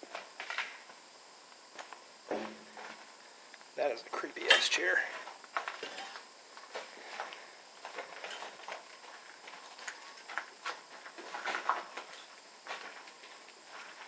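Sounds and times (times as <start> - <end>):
footsteps on debris: 1.7 - 3.2, 5.0 - 14.0.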